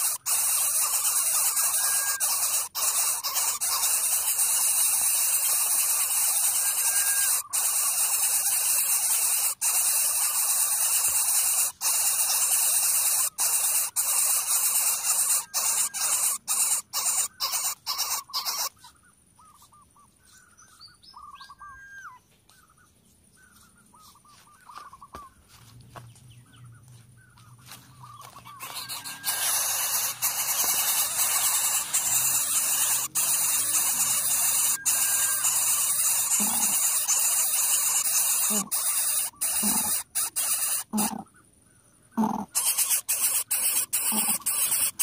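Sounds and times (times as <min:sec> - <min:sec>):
nestlings hissing loudly: 0:00.0 - 0:18.8, 0:28.5 - 0:41.2, 0:42.2 - 0:45.0
faint high chirps and squeaks: 0:00.0 - 0:41.5, 0:42.1 - 0:45.0.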